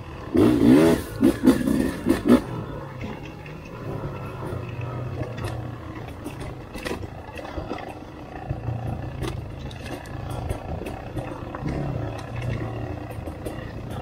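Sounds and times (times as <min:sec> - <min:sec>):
motorcycle engine revving: 0:00.0 - 0:14.0
knocks and clatters: 0:01.0 - 0:14.0.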